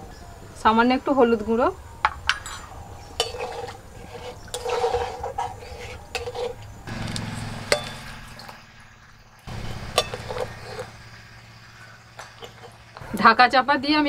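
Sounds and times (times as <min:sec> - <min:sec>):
metal spatula scraping wok: 0:02.4 - 0:06.9, 0:09.5 - 0:13.0
curry simmering: 0:02.4 - 0:13.1.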